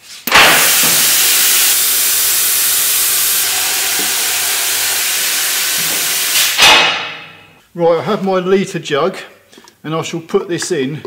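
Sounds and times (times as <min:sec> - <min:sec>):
release valve hissing: 0:00.3 - 0:06.7.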